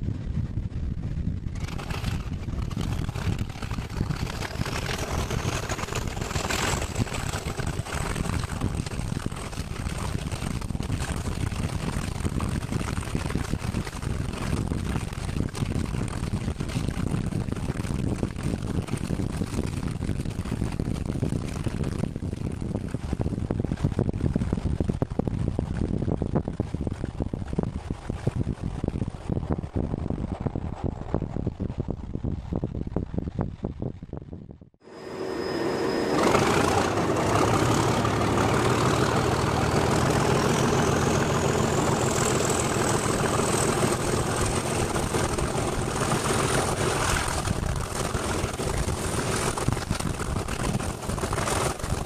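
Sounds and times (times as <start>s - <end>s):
train rumble: 0.0s - 14.8s, 34.8s - 52.0s
wind buffeting microphone: 0.0s - 52.0s
diesel locomotive engine working hard: 1.5s - 11.1s, 34.8s - 52.0s
turbocharger whistle: 34.8s - 43.9s.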